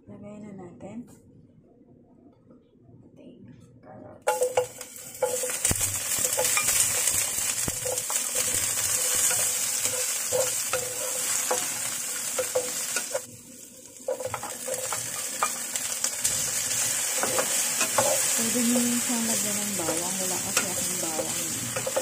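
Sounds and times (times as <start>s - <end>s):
vegetables sizzling in hot oil: 4.3s - 22.0s.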